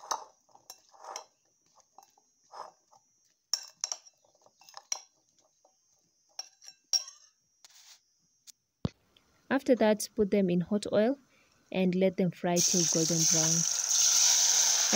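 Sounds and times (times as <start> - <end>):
metal spoon clinking on glass bowl: 3.5 - 5.1, 6.4 - 7.3
food pieces being turned: 12.6 - 14.9.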